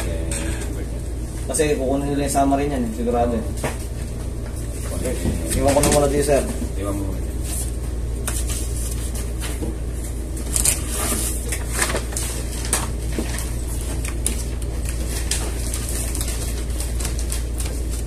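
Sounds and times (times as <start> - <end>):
steady low hum: 0.0 - 18.0
papers rustling on desk: 4.7 - 6.6, 7.4 - 18.0.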